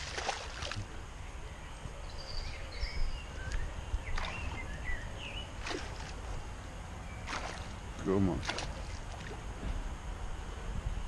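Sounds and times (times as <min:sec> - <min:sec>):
fish splashing in water: 0:00.0 - 0:00.9, 0:04.1 - 0:04.7, 0:05.6 - 0:06.4, 0:07.2 - 0:09.5
small birds chirping: 0:00.1 - 0:09.3.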